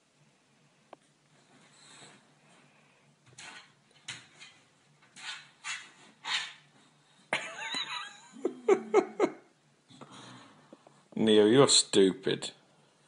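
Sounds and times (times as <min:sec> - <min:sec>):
person laughing: 0:07.3 - 0:09.5.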